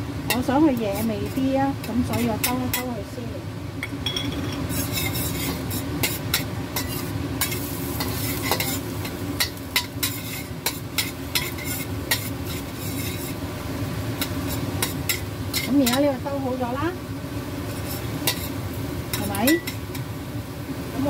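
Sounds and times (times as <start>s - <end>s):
light sizzle of frying: 0.0s - 21.0s
metal spatula scraping a wok: 0.3s - 3.0s, 4.4s - 13.5s, 14.2s - 16.2s, 17.7s - 20.0s.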